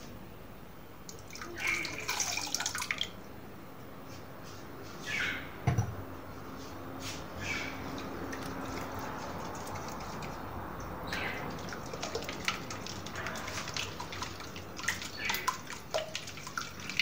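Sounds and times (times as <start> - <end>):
whisk beating eggs: 11.3 - 17.0.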